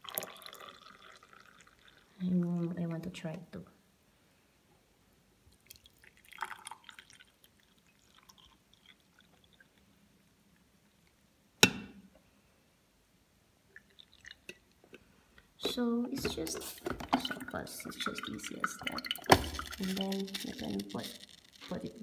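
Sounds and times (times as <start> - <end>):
coffee pouring into mugs: 0.0 - 2.4, 5.6 - 9.9, 13.8 - 14.7, 15.6 - 22.0.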